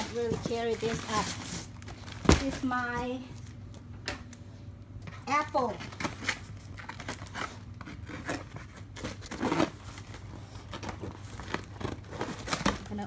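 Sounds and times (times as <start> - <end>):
cardboard boxes scraping: 0.0 - 1.7
packing tape slit with cutter: 5.9 - 9.8.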